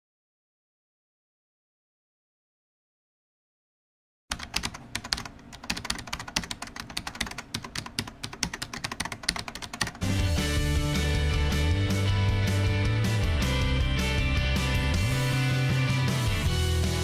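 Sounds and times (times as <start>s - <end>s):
keyboard typing clicks: 4.3s - 10.1s
rock music with bass and guitar: 10.0s - 17.0s.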